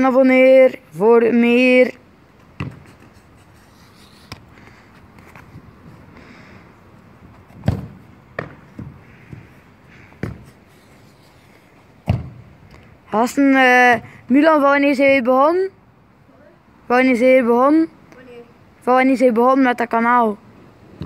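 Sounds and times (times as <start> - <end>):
football thudding on paving and wall: 2.4 - 3.1, 7.3 - 10.6, 12.0 - 12.7.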